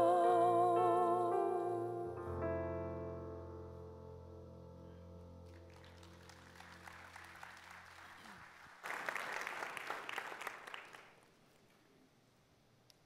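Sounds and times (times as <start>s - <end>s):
song held chord: 0.0s - 5.5s
congregation applauding: 5.4s - 11.3s.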